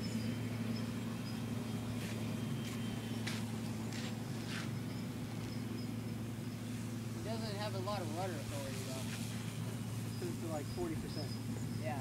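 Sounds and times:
distant model plane drone: 0.0s - 12.0s
short hissing rasps: 8.5s - 10.6s.

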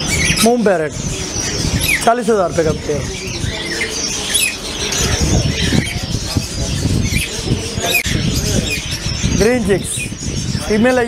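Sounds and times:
birds chirping and squawking: 0.0s - 11.0s.

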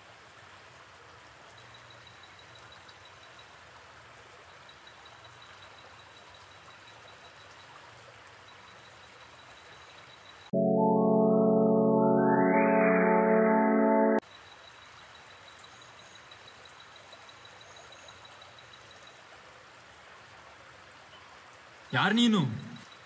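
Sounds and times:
faint steady hiss: 0.0s - 23.0s
faint high-pitched tone: 10.5s - 14.2s, 21.9s - 23.0s.

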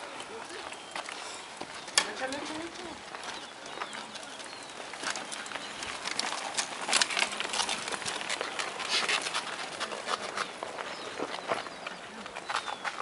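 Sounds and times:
bike tyres crunching over gravel: 0.0s - 13.0s.

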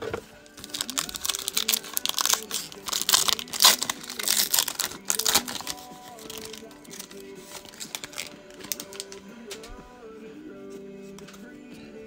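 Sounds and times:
foil wrapper crinkling and tearing: 0.4s - 9.2s.

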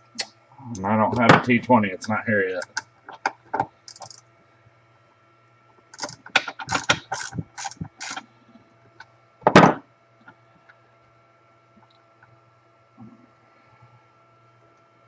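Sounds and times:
tools rattling: 3.9s - 4.2s.

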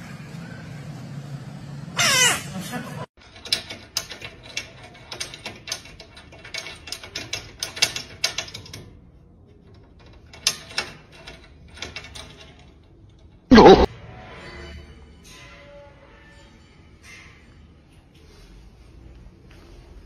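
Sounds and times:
metal cage latch clicking and rattling: 3.2s - 13.5s.

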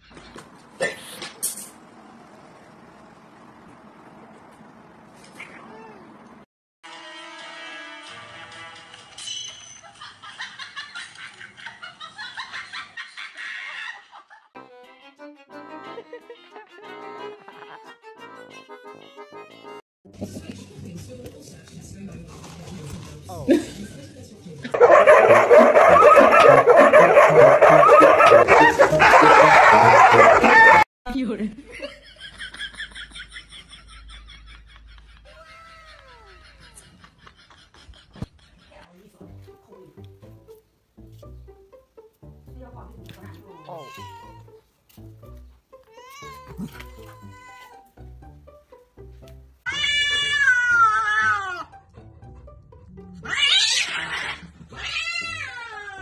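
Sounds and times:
puppies yapping and howling: 24.8s - 30.9s
cats yowling and screeching: 25.1s - 30.8s, 43.5s - 44.4s, 45.9s - 47.8s, 49.7s - 51.7s, 53.2s - 56.0s.

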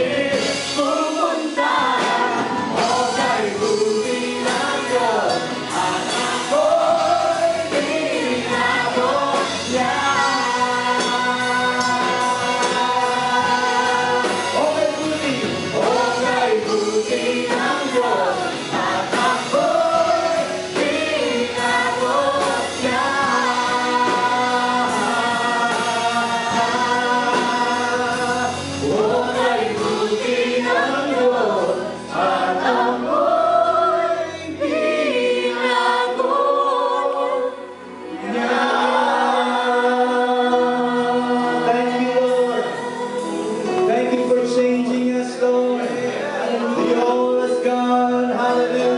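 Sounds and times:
congregation singing: 0.0s - 48.9s
worship band playing: 0.0s - 48.9s.

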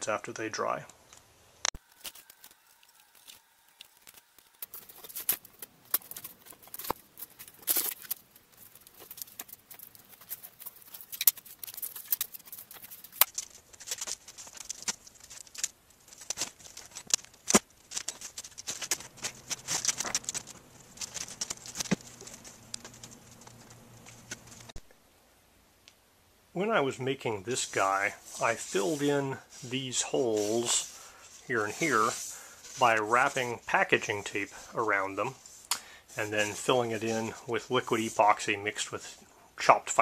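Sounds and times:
packing tape crackling: 1.8s - 24.8s.

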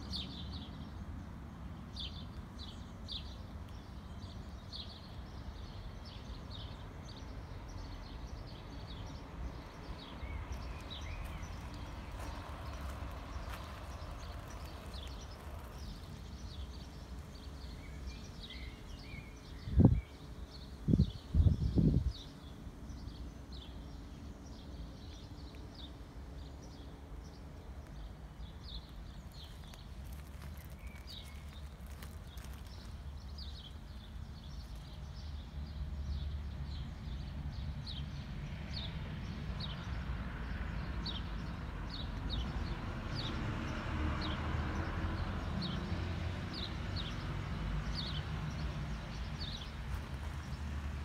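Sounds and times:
small bird chirping: 27.8s - 35.4s.

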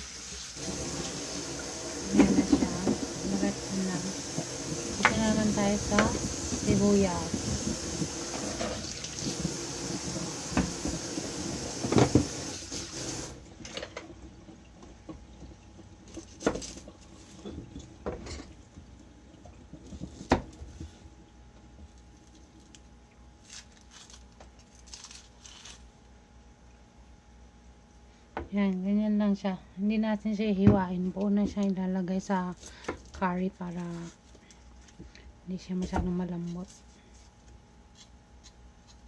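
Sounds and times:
steady hiss: 0.0s - 13.4s.

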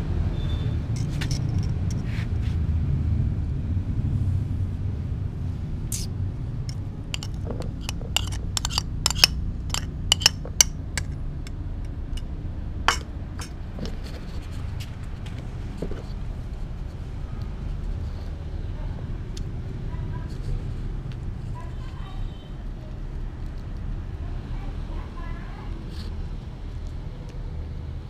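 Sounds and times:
metal spoon clinking on glass plate: 7.2s - 11.1s, 12.9s - 13.5s.

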